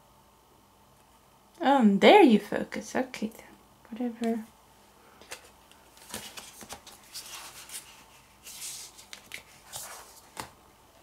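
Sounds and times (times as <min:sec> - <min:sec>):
rustling: 0:05.3 - 0:10.5.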